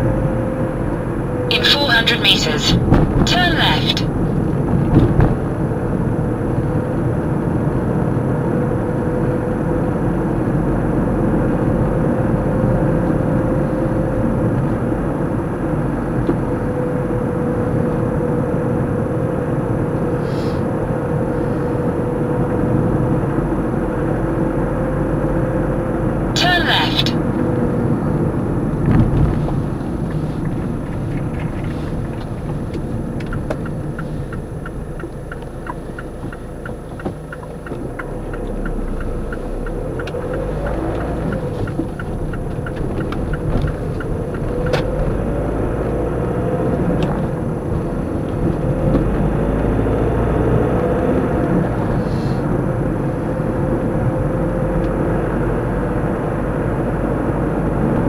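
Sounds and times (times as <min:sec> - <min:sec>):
car engine: 0:00.0 - 0:58.0
road noise inside car: 0:00.0 - 0:58.0
turn indicator ticking: 0:30.0 - 0:49.3.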